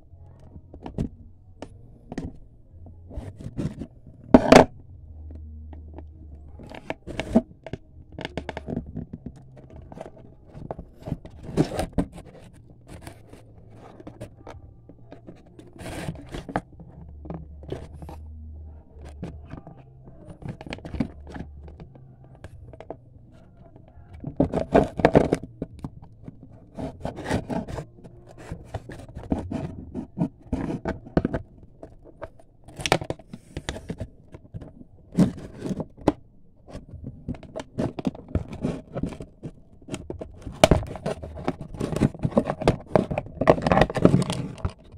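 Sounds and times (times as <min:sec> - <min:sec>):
cardboard scraping and tearing: 0:26.3 - 0:44.9.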